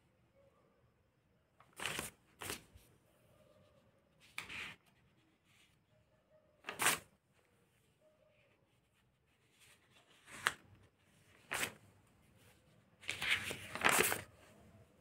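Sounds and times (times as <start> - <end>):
notebook pages turning: 1.6 - 2.9, 4.2 - 5.7, 6.6 - 7.1, 8.8 - 14.6.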